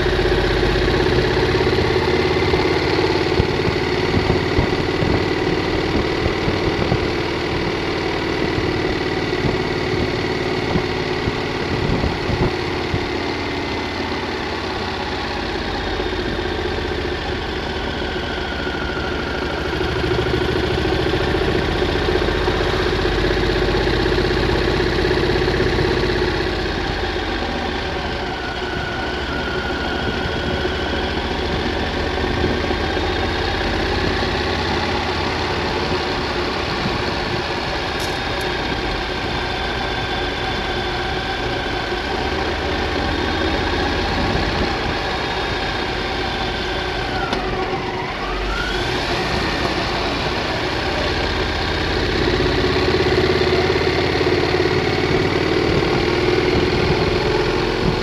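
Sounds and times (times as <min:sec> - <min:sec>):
motorcycle engine cruising: 0:00.0 - 0:58.0
wind rush: 0:09.4 - 0:13.1.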